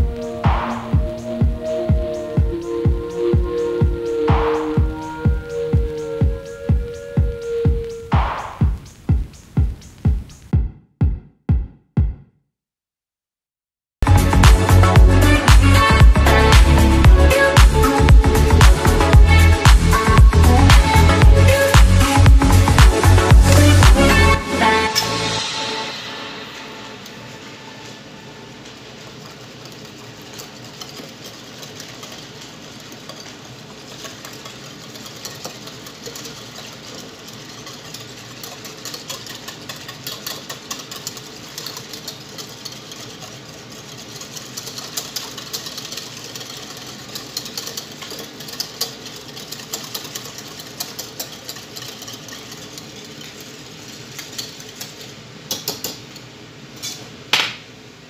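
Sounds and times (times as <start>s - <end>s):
wire whisk clicking in bowl: 29.2s - 56.0s.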